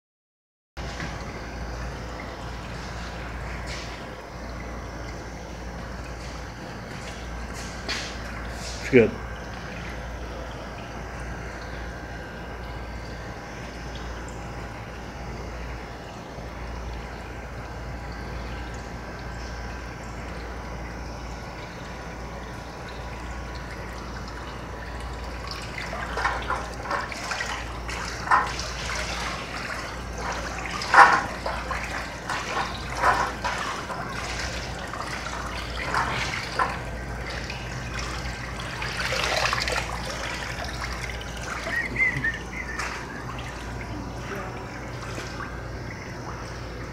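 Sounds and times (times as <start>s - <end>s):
steady low hum: 0.8s - 46.9s
water sloshing and splashing: 0.8s - 46.9s
water running off object: 22.4s - 46.9s.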